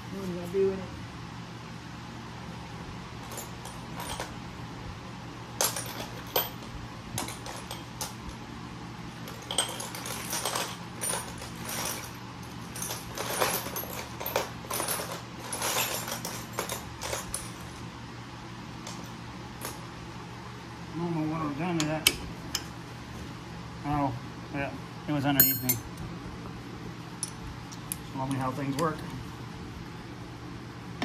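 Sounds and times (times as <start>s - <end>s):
fan humming: 0.0s - 31.0s
metal tools clinking: 25.4s - 25.9s.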